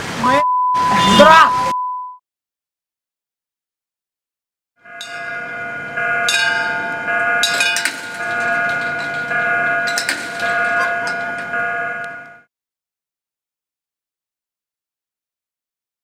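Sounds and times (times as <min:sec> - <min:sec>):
level crossing bell ringing: 0:04.8 - 0:12.5.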